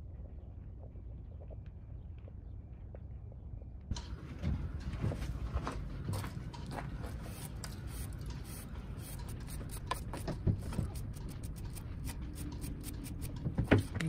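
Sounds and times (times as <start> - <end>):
steady low rumble: 0.0 - 14.0
bristle brush scrubbing metal: 7.1 - 14.0.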